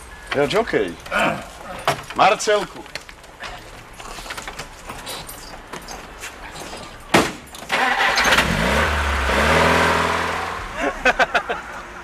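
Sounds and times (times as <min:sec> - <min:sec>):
car engine cranking and starting: 0:06.9 - 0:10.8.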